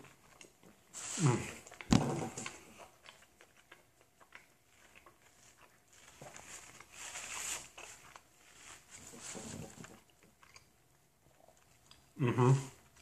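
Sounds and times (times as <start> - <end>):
soft chewing and mouth clicks: 0.0 - 13.0
paper napkin rustling: 5.9 - 9.9
man humming mmm: 12.2 - 12.8.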